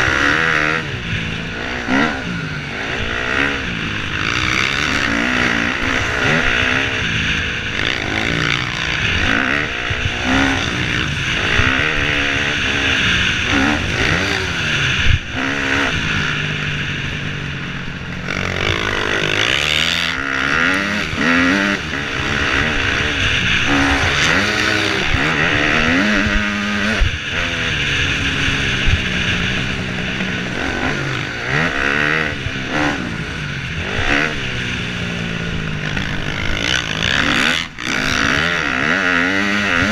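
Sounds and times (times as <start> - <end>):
dirt bike engine revving: 0.0 - 39.9.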